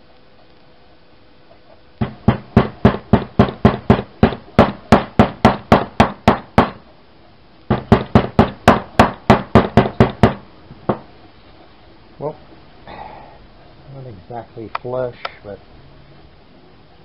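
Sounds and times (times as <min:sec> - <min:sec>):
wooden mallet knocking: 0:02.0 - 0:06.8, 0:07.7 - 0:11.1.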